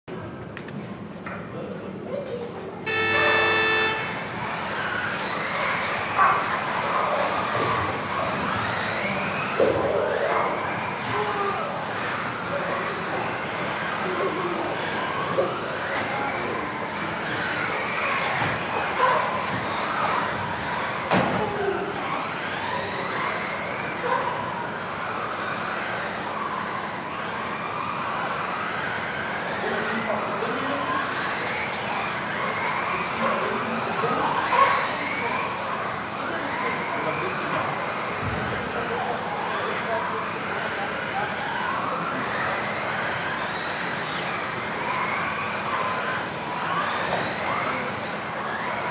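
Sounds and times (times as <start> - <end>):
steady electronic tone: 2.9 - 4.5
rc car motors whining: 2.9 - 48.9.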